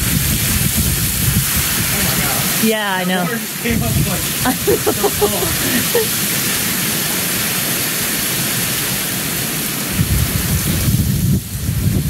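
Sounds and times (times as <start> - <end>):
wind gust buffeting microphone: 0.0 - 6.0, 9.9 - 12.0
torrential rain hissing: 0.0 - 12.0.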